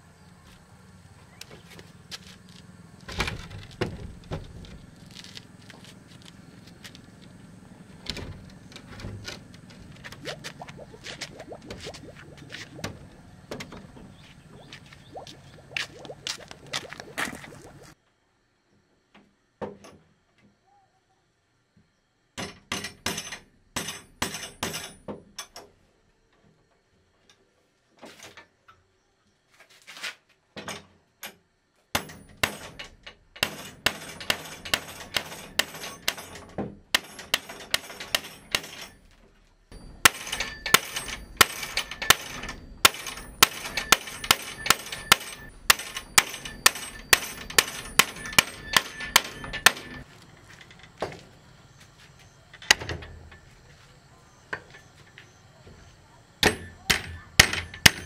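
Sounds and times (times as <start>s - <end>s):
metal hand tool striking with clang: 39.8s - 50.0s, 56.4s - 58.0s.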